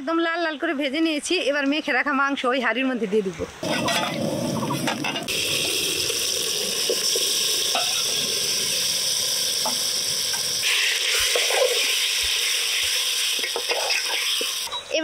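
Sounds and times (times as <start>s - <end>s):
meat sizzling in hot oil: 3.6s - 14.7s
spatula scraping a pot: 13.4s - 14.7s.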